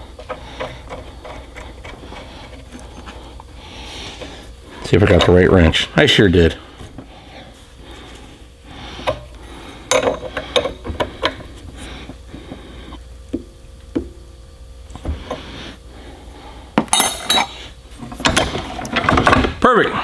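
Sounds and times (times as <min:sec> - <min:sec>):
wrench clinking against metal: 0:16.9 - 0:17.6.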